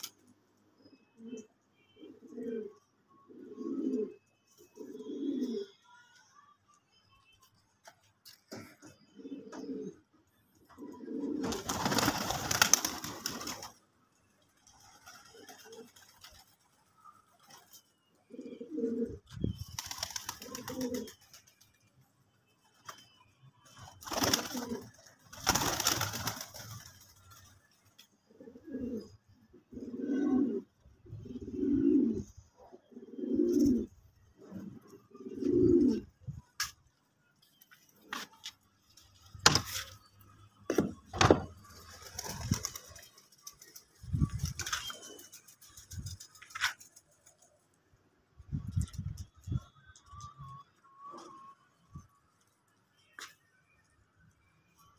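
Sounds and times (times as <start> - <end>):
pigeons cooing: 0.8 - 5.8, 8.5 - 13.7, 18.3 - 21.2, 24.1 - 26.4, 28.2 - 36.7.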